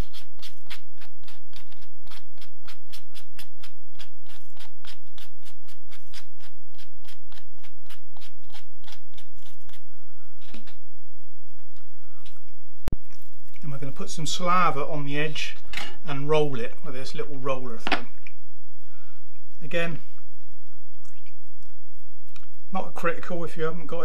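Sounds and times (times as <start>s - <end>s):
sandpaper rubbing leather: 0.0s - 10.8s.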